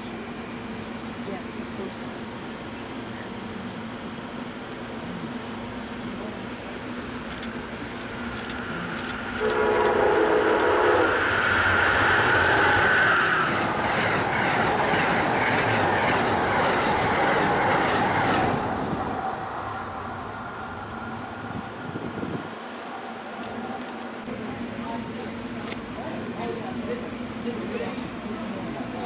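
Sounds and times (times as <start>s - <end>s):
train wheels clacking on rail joints: 7.9s - 18.8s
train horn chord: 9.2s - 13.5s.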